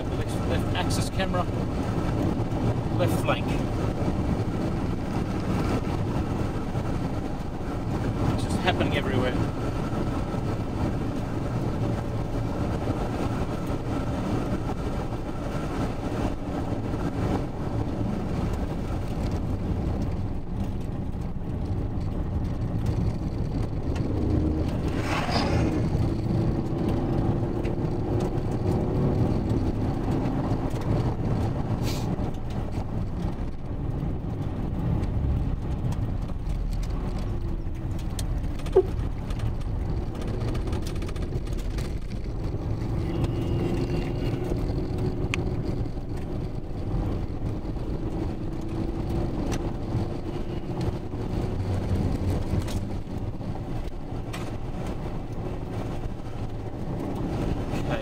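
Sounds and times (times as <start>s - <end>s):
vehicle driving on dirt road: 0.0s - 58.0s
pickup truck passing: 22.8s - 30.9s.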